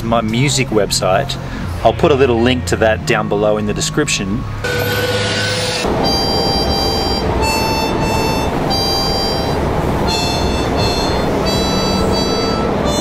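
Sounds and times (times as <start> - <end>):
harmonica held notes: 4.6 - 13.0
train carriage rumble: 5.8 - 13.0.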